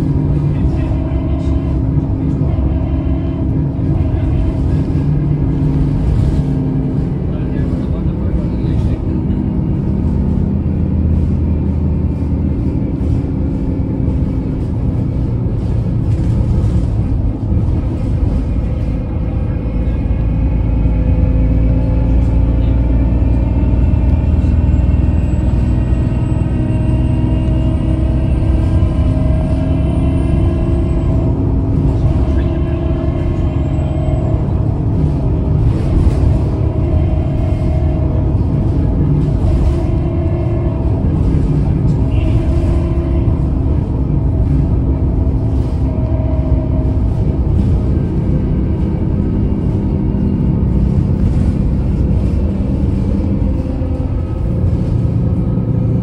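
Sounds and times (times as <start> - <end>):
bus drivetrain and road rumble: 0.0 - 56.0.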